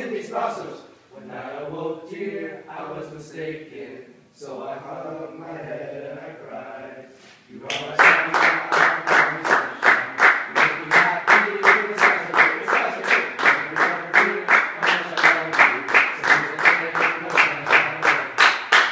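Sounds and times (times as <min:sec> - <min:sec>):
hands clapping in unison: 0:07.7 - 0:18.9.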